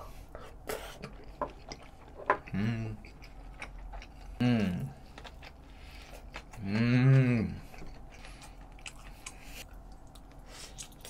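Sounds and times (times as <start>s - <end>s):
chewing and mouth clicks: 0.4s - 11.0s
person humming mmm: 2.5s - 3.2s, 4.4s - 5.0s, 6.5s - 7.8s.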